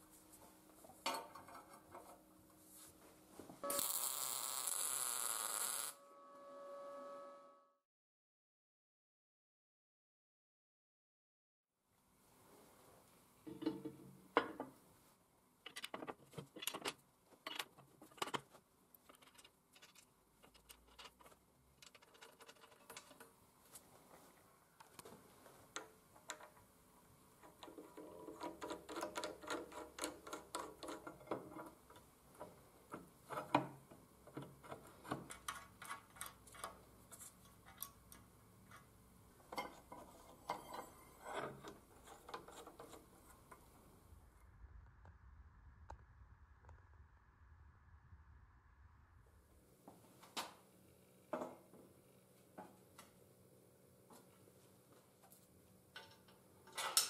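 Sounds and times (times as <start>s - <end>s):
metal parts clicking and clattering: 15.6s - 23.3s, 34.4s - 38.9s, 55.9s - 57.0s.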